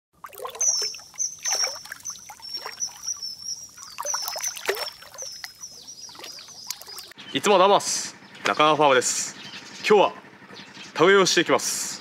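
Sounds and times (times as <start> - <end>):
water trickling and splashing: 0.2 - 7.2.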